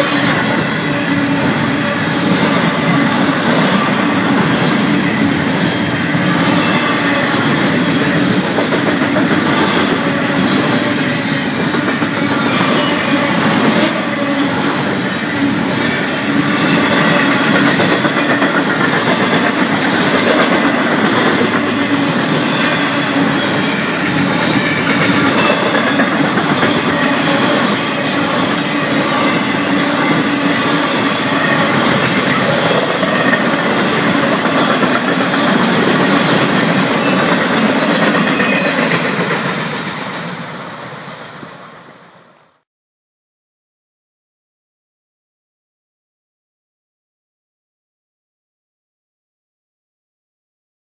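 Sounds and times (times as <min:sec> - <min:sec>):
freight train wheels on rail: 0:00.0 - 0:42.6.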